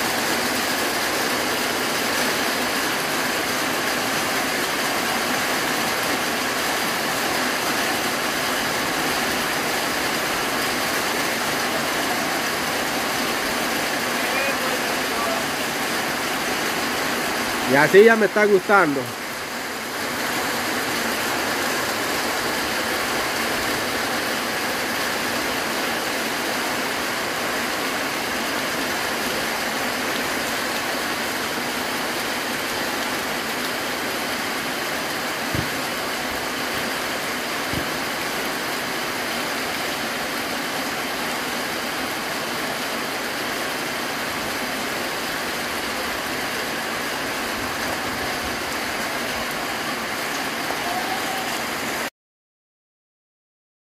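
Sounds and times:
rain on a corrugated roof: 0.0 - 52.1
knocks: 35.5 - 35.8.

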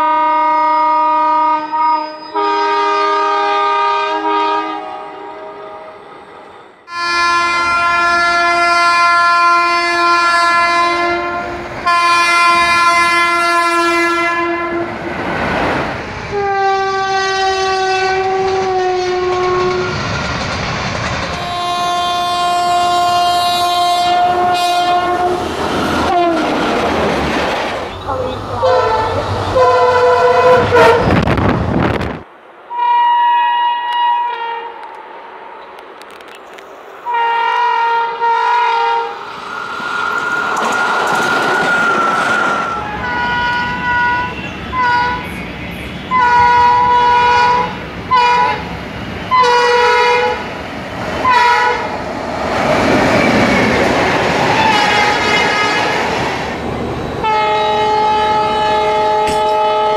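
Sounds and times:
locomotive air horn blasts: 0.0 - 6.0, 6.9 - 14.9, 16.3 - 20.0, 21.4 - 25.4, 26.0 - 26.5, 28.1 - 31.2, 32.7 - 34.9, 37.0 - 39.2, 42.6 - 48.6, 49.3 - 50.4, 51.2 - 51.9, 54.5 - 56.0, 57.2 - 59.9
passing train rumble and clacking: 0.0 - 59.9.

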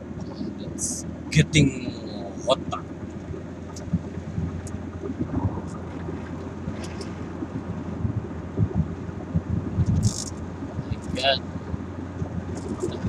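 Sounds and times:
car road and engine rumble: 0.0 - 13.0
wind buffeting microphone: 2.1 - 13.0.

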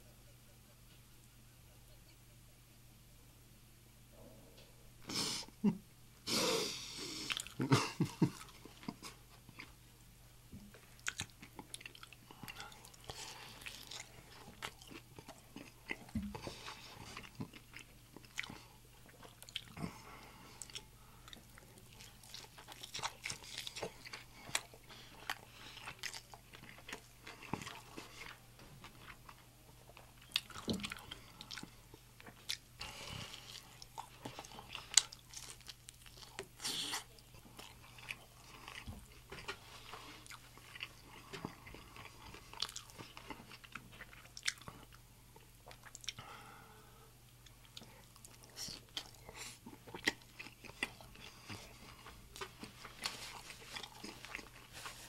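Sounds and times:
biting and chewing crunchy food: 7.2 - 9.8, 10.6 - 46.2, 47.4 - 55.0.

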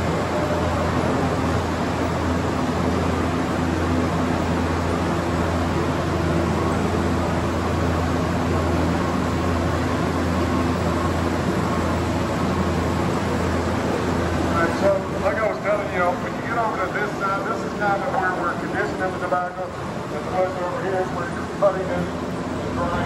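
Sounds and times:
machinery running: 0.0 - 23.0.

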